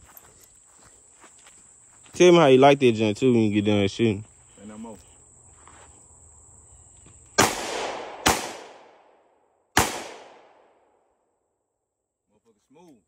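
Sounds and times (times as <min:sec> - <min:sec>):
pistol shots with echo: 0:07.4 - 0:10.9.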